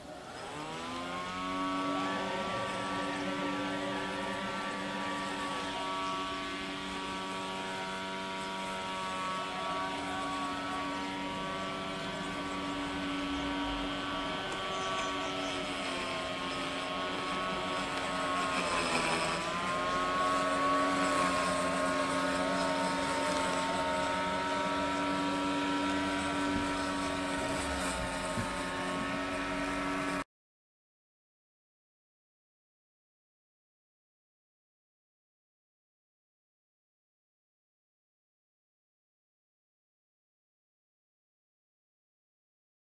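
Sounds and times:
engine droning: 0.0s - 30.2s.

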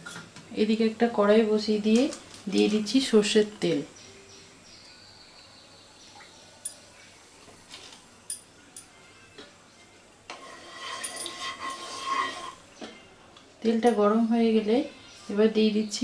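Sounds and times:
wooden spatula scraping a pan: 10.3s - 12.7s.

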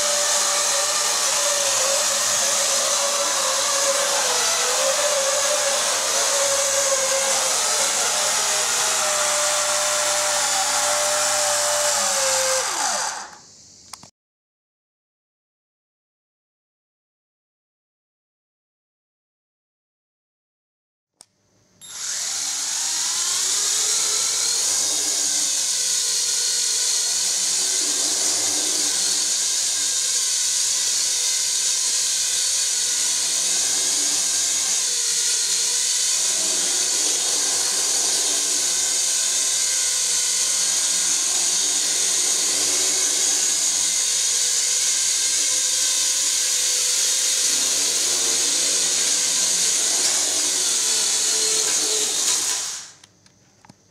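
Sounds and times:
quadcopter motors whining: 0.0s - 13.4s, 21.8s - 53.1s.

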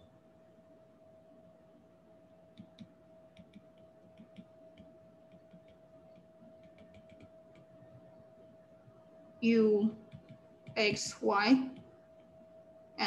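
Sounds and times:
faint steady tone: 0.0s - 13.0s
stylus tapping on glass screen: 2.5s - 7.7s.

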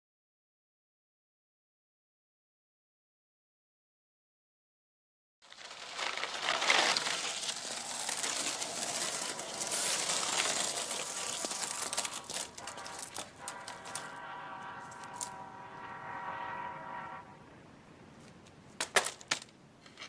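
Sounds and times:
skateboard wheels rolling on pavement: 5.4s - 16.1s, 18.0s - 20.0s.

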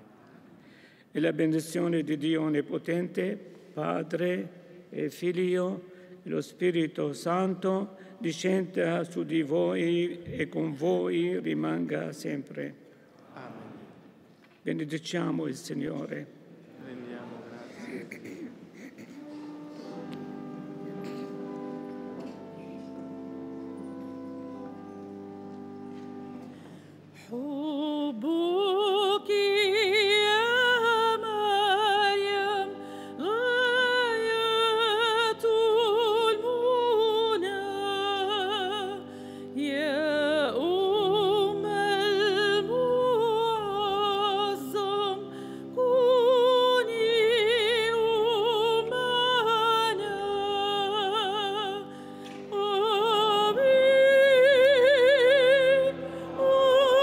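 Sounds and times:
sustained instrumental accompaniment: 19.0s - 27.2s
woman singing with vibrato: 27.2s - 57.0s.

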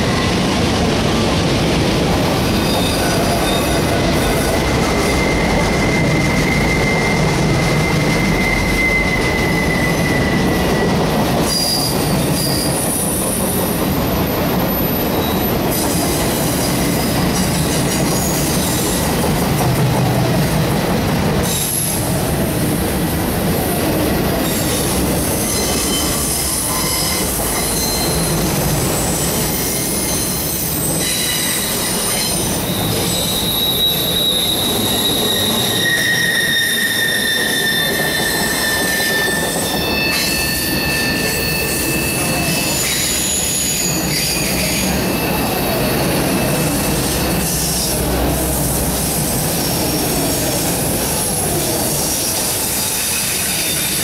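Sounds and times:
steel wheels rumbling on rails: 0.0s - 54.0s
high-pitched wheel squeals: 2.6s - 13.5s, 24.4s - 48.1s.

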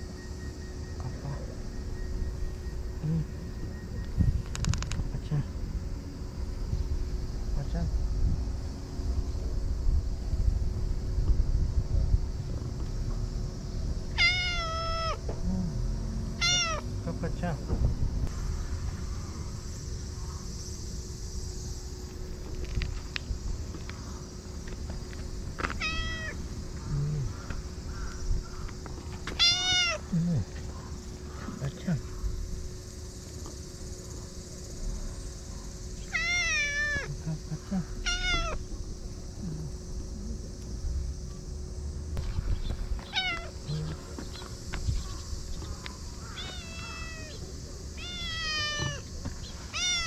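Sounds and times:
cat meowing: 14.2s - 15.2s, 16.4s - 16.8s, 25.8s - 26.4s, 29.4s - 30.0s, 36.1s - 37.1s, 38.0s - 38.6s, 43.1s - 43.5s, 46.4s - 47.4s, 48.0s - 49.1s, 49.7s - 50.0s.

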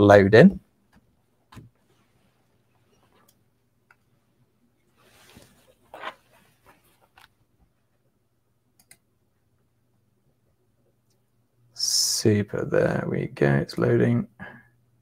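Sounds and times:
soft rustling: 4.1s - 7.8s
faint clicks: 8.8s - 9.1s.

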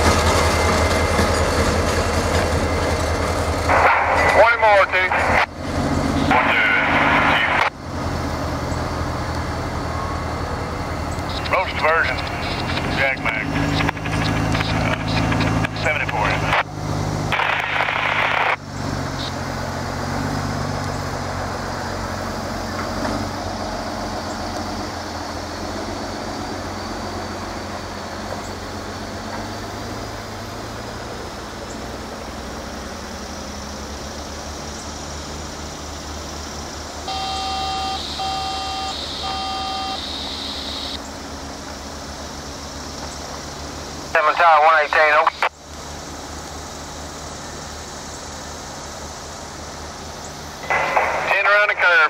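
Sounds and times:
low engine rumble: 0.0s - 52.0s
short beeps: 37.0s - 41.0s.

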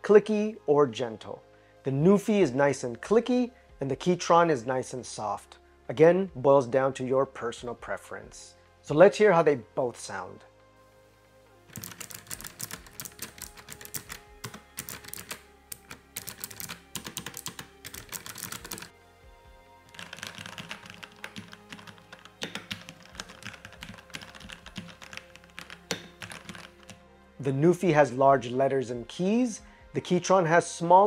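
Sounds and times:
clicky keyboard typing: 11.7s - 18.9s, 19.9s - 27.0s
soft keyboard typing: 11.7s - 18.9s, 19.9s - 27.0s.

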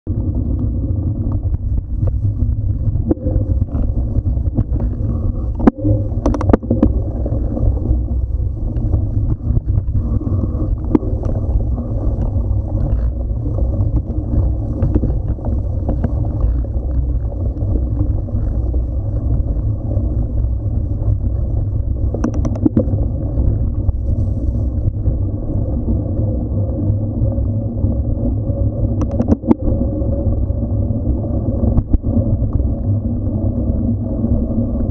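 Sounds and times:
wind on microphone: 0.0s - 34.9s
bike rattling over bumps: 0.1s - 25.2s
bike tyres rumbling: 0.1s - 34.9s.

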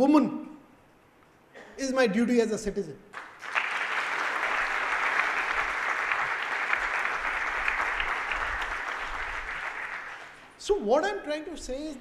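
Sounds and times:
audience clapping: 3.1s - 10.6s.

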